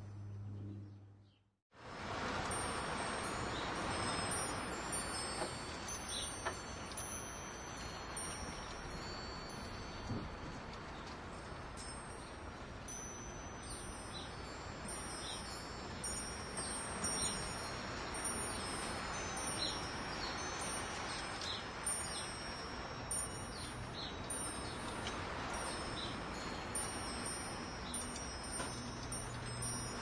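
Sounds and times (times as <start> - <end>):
wind chimes ringing: 1.8 - 30.0.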